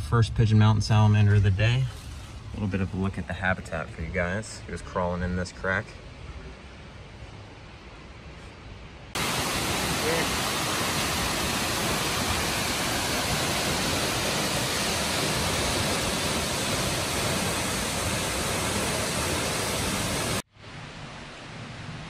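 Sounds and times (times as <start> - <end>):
quiet steady hiss: 0.0 - 22.0
waterfall rushing: 9.2 - 20.5.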